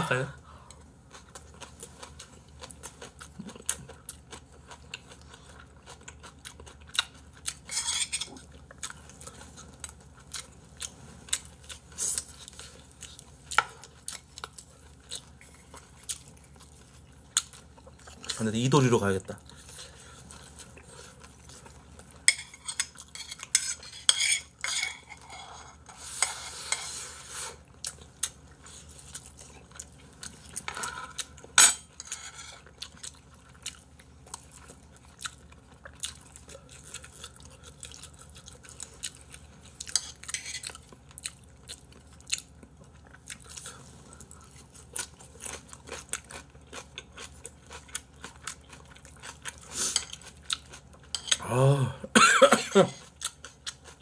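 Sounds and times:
chewing: 0:00.7 - 0:18.4, 0:27.6 - 0:51.4, 0:53.0 - 0:54.0.

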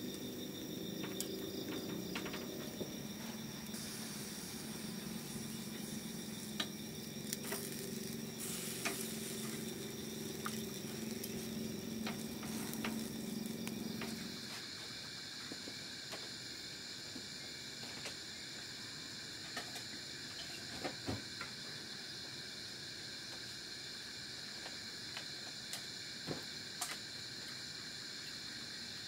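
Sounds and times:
skewers sizzling on a grill: 0:00.0 - 0:16.6
night insects chorus: 0:00.0 - 0:29.0
charcoal popping and crackling: 0:00.1 - 0:14.5.

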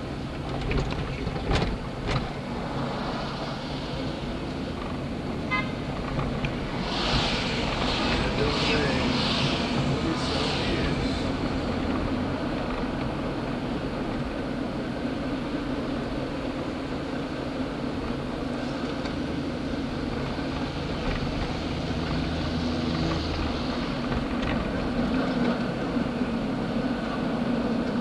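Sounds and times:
engine and road rumble: 0:00.0 - 0:28.0.

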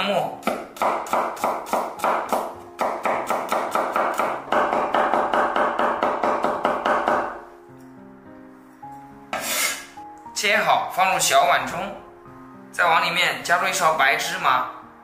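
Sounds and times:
soft background music: 0:00.0 - 0:15.0
cleaver chopping on wooden board: 0:00.4 - 0:07.4.

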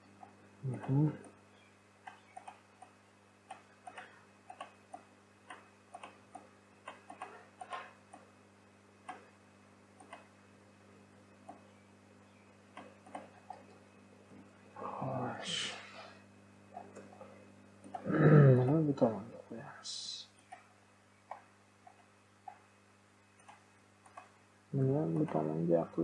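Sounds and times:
low steady hum: 0:00.0 - 0:26.0
computer mouse clicks: 0:02.0 - 0:08.3, 0:09.0 - 0:09.4, 0:10.0 - 0:10.3, 0:12.7 - 0:13.8, 0:20.4 - 0:20.7, 0:21.3 - 0:22.6, 0:23.4 - 0:24.4.

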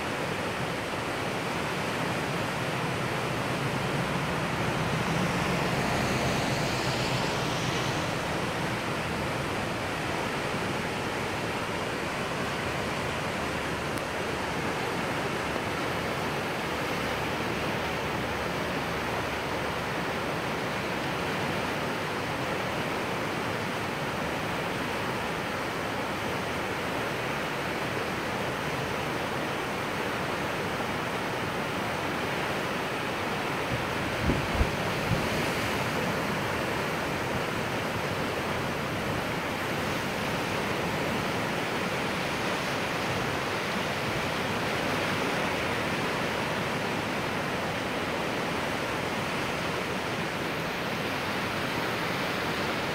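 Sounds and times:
floodwater rushing: 0:00.0 - 0:21.7, 0:29.4 - 0:52.9.

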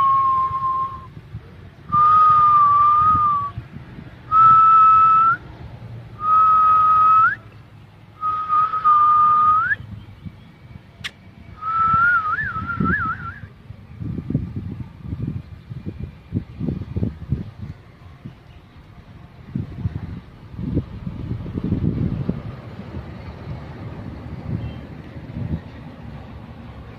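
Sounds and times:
person whistling held notes: 0:00.0 - 0:01.1, 0:01.9 - 0:03.6, 0:04.3 - 0:05.4, 0:06.2 - 0:07.4, 0:08.2 - 0:09.9, 0:11.6 - 0:13.5
sharp click: 0:11.0 - 0:11.2.

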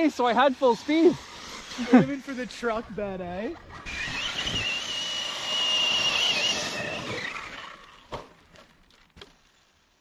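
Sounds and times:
tyres on gravel: 0:00.0 - 0:10.0
electric motor whine: 0:03.6 - 0:08.1.

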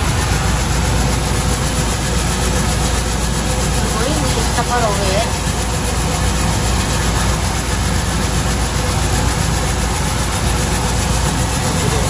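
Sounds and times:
rice mill running: 0:00.0 - 0:12.0.

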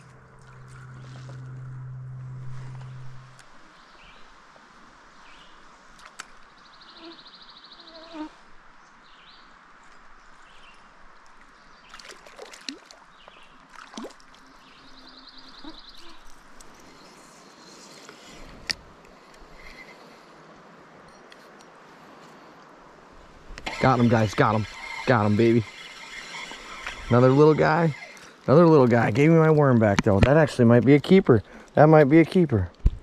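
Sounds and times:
stream water flowing: 0:09.8 - 0:15.1, 0:23.0 - 0:29.8.

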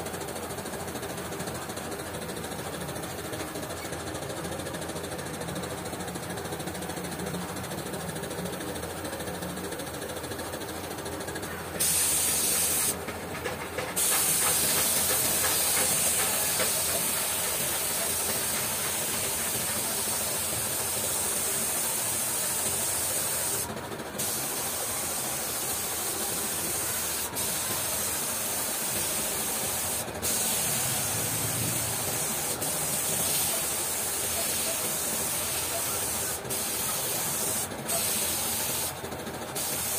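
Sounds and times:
paint spray gun hissing: 0:11.8 - 0:13.0, 0:14.0 - 0:39.9.

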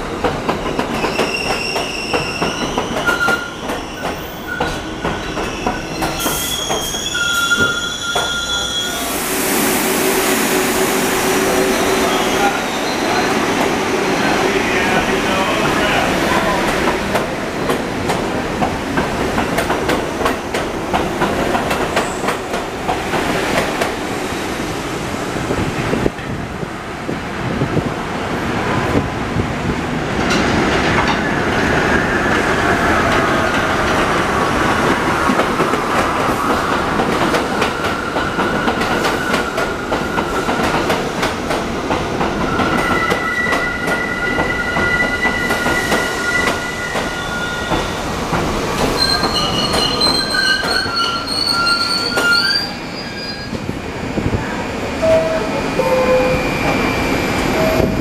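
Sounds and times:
high wheel squeal: 0:01.0 - 0:09.2, 0:42.5 - 0:48.0, 0:48.8 - 0:53.6, 0:55.0 - 0:58.0.

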